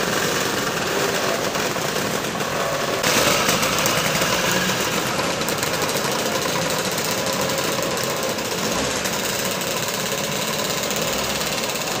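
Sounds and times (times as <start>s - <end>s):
scooter engines riding past: 0.0s - 12.0s.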